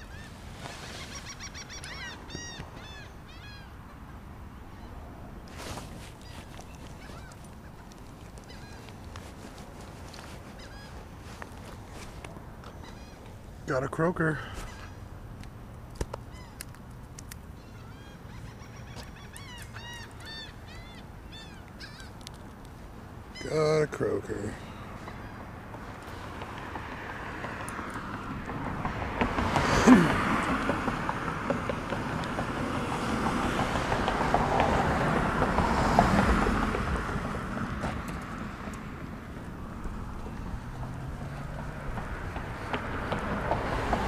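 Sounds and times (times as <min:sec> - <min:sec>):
bird calling: 0:00.0 - 0:13.5, 0:14.2 - 0:15.1, 0:16.2 - 0:16.8, 0:17.6 - 0:22.5, 0:23.3 - 0:27.8.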